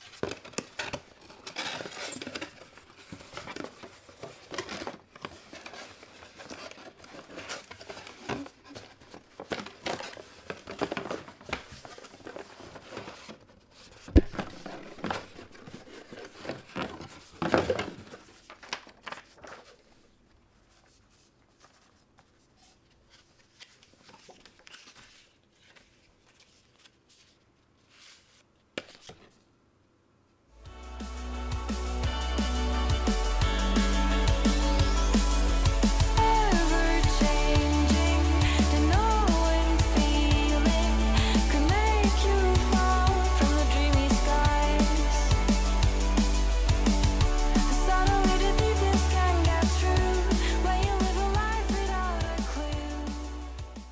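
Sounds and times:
cardboard packaging rustling: 0:00.0 - 0:29.4
paper cards handled: 0:00.0 - 0:29.4.

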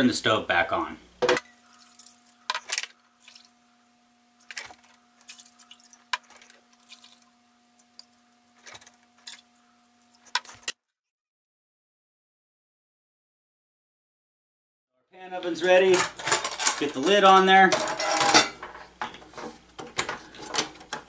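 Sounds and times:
water pouring into saucepan: 0:05.2 - 0:08.2.

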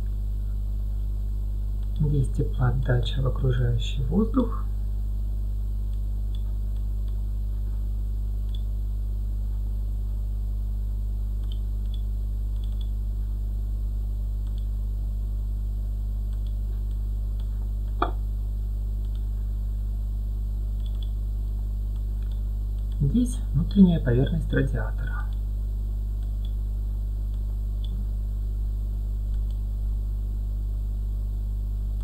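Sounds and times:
electrical mains hum: 0:00.0 - 0:32.0
computer mouse clicks: 0:08.4 - 0:08.7, 0:11.4 - 0:12.9, 0:14.4 - 0:14.7, 0:16.3 - 0:18.2, 0:19.0 - 0:19.3, 0:20.8 - 0:21.2, 0:21.9 - 0:23.0, 0:26.2 - 0:26.6, 0:29.3 - 0:29.6.

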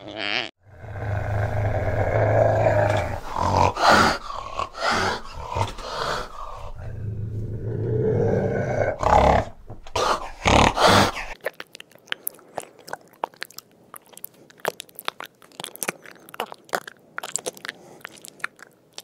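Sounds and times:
cat growling: 0:00.0 - 0:11.4
cat snarling: 0:00.3 - 0:11.4.

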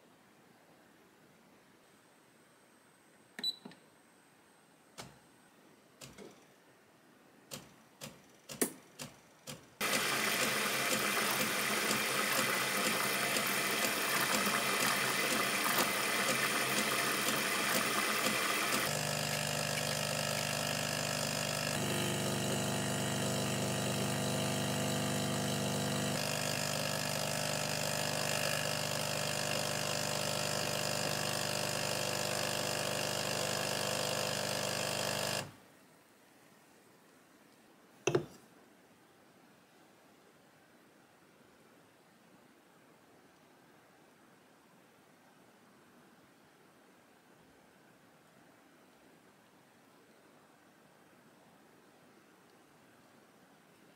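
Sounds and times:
coffee machine pump buzzing: 0:09.8 - 0:35.5.

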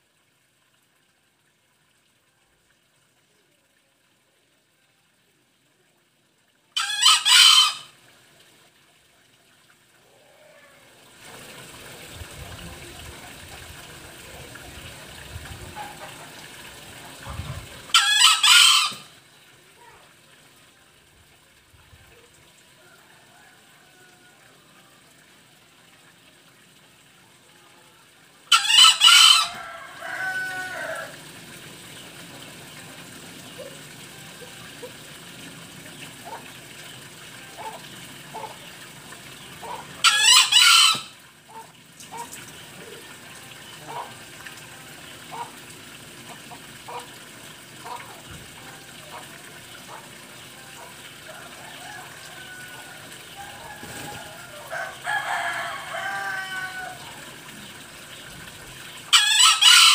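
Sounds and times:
junglefowl crowing: 0:06.8 - 0:08.0, 0:17.8 - 0:19.2, 0:22.8 - 0:25.0, 0:28.5 - 0:31.3, 0:37.6 - 0:38.6, 0:39.6 - 0:43.0, 0:43.8 - 0:44.2, 0:50.8 - 0:57.4, 0:59.1 - 0:59.9.

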